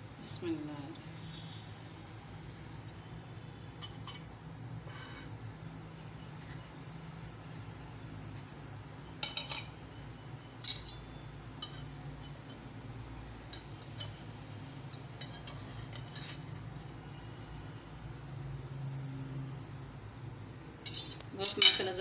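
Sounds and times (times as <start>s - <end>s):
low steady hum: 0.0s - 22.0s
knife clinking on china plate: 10.6s - 12.6s, 15.0s - 16.4s, 20.8s - 22.0s.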